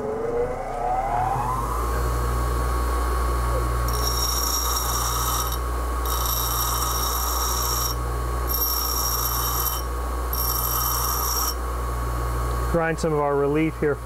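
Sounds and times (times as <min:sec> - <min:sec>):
grinder motor running: 0:03.8 - 0:11.6
high-pitched ringing grind: 0:03.9 - 0:11.6.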